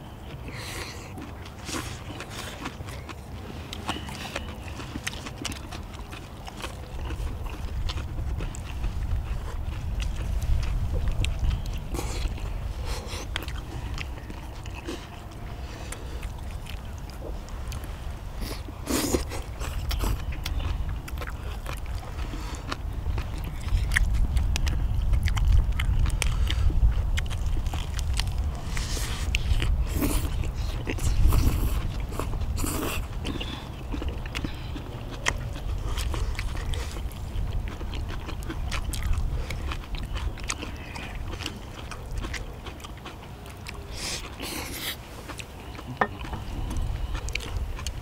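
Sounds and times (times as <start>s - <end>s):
people chewing and biting: 0.0s - 48.0s.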